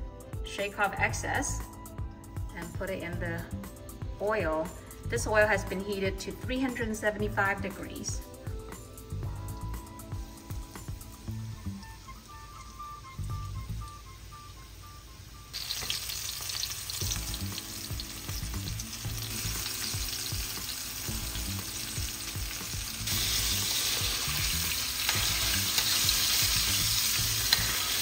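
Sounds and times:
chicken deep-frying in oil: 9.5 - 28.0.

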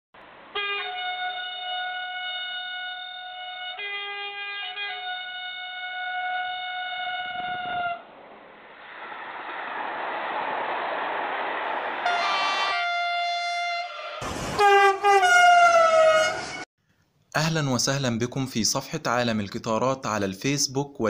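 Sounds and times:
train horn chord: 0.5 - 8.0, 12.1 - 16.6
rushing noise: 7.3 - 16.7.

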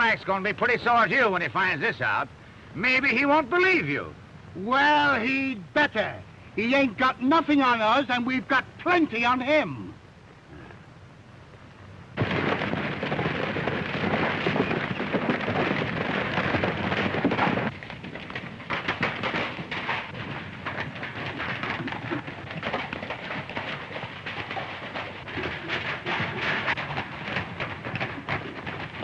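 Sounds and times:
crackling rumble with clicks: 11.4 - 29.0
loud rumbling crash: 12.2 - 17.7.

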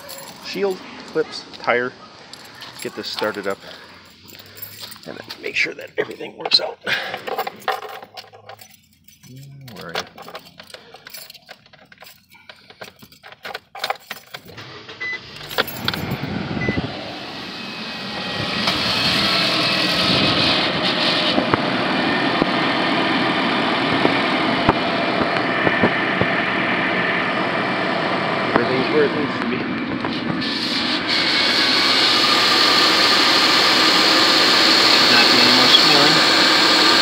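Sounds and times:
keys jangling in ignition: 0.0 - 1.3, 2.3 - 14.6, 15.3 - 16.3
car engine starting and idling: 0.0 - 37.0.

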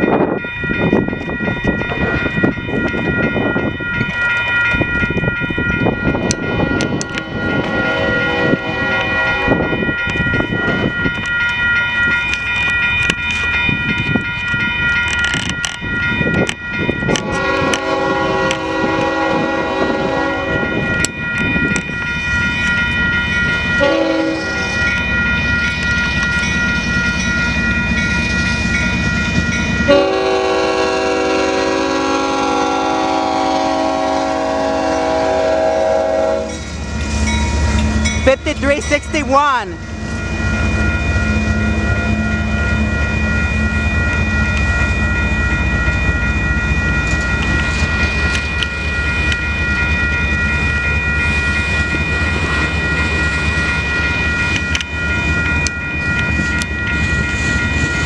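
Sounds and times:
crossing bells ringing: 0.0 - 58.0
locomotive horn blasts: 7.0 - 9.7, 17.1 - 20.7, 23.8 - 24.7, 29.9 - 36.6.

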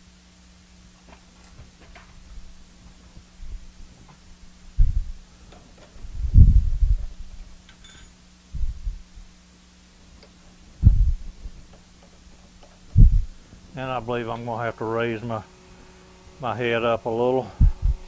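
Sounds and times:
low hum: 1.9 - 9.4, 10.0 - 18.0
faint metallic clink: 4.1 - 4.6, 7.7 - 8.2.

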